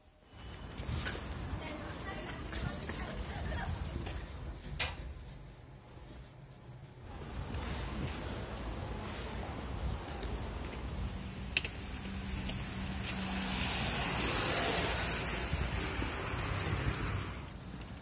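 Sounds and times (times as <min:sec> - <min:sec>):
steady low traffic rumble: 0:00.0 - 0:18.0
passing vehicle tyre noise: 0:07.1 - 0:17.9.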